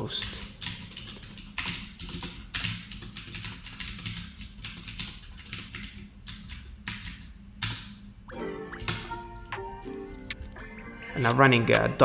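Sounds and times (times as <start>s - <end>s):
computer keyboard clicking: 0.6s - 8.0s.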